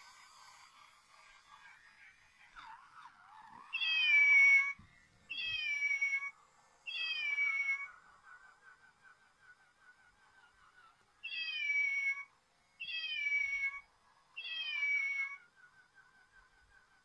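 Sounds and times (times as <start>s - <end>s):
toy cat meowing: 3.6s - 8.0s, 11.2s - 15.5s.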